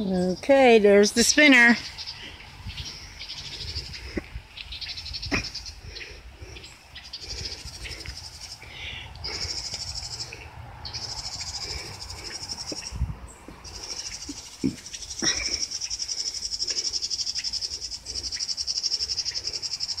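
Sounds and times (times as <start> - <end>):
wind rumble on microphone: 2.0 - 8.3, 10.4 - 13.9
insects buzzing in high trill: 7.1 - 12.9, 13.6 - 20.0.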